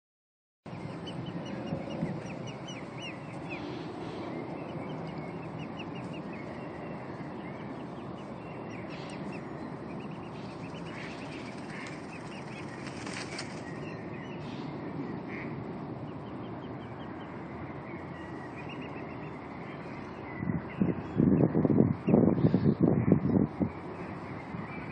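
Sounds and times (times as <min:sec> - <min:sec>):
cygnets peeping: 0:00.7 - 0:22.8
low background rush: 0:00.7 - 0:24.9.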